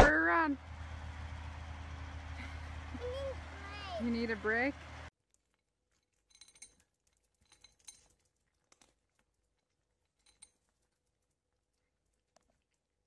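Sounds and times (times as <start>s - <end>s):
cat eating crunching: 5.3s - 13.0s.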